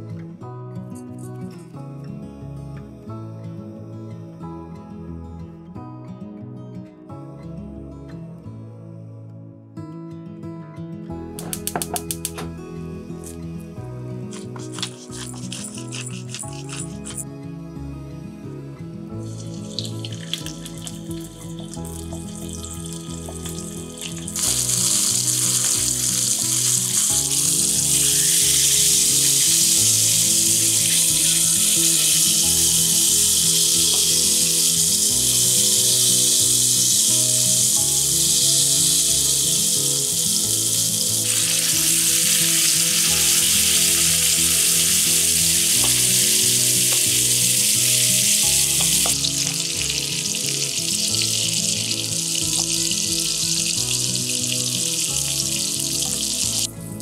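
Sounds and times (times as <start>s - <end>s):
fish fillets sizzling in frying pan: 19.2s - 56.7s.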